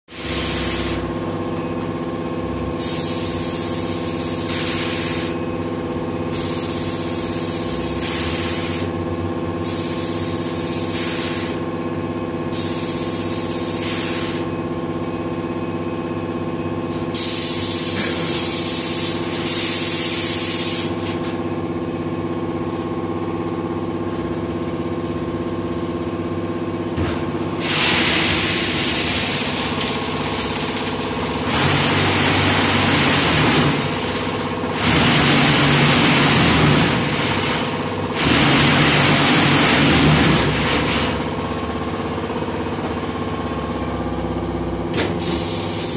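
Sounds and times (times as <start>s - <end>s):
machinery motors humming: 20.9s - 45.9s.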